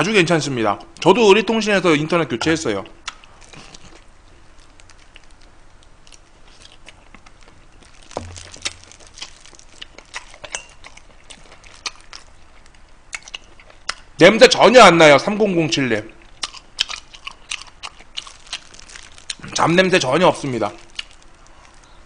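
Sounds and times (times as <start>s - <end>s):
close chewing: 3.0s - 14.1s, 16.4s - 19.6s, 20.7s - 22.0s
soft low bump: 8.1s - 9.0s.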